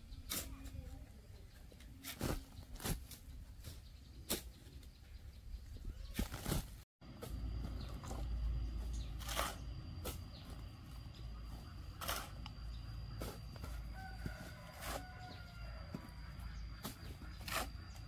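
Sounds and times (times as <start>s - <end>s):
rooster crowing faintly: 13.6s - 16.3s.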